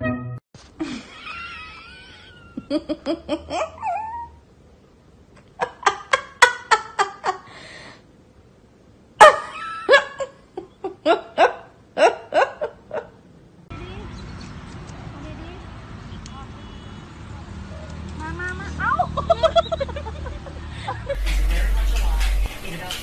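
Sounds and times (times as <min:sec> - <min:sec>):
laughter in short bursts: 0:19.2 - 0:21.2.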